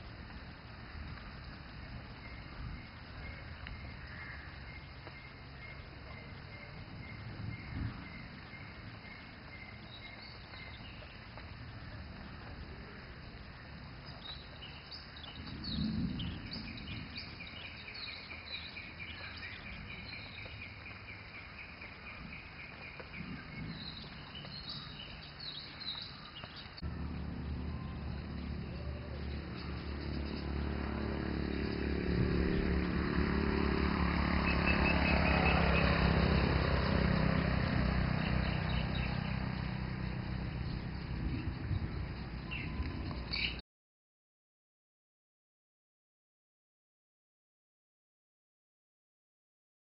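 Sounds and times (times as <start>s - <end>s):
birds chirping and trilling: 2.0s - 43.6s
vehicle engine running: 26.8s - 43.2s.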